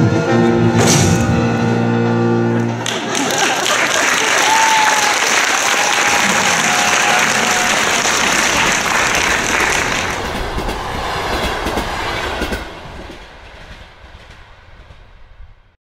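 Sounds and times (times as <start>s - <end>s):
train running on rails: 4.5s - 15.8s.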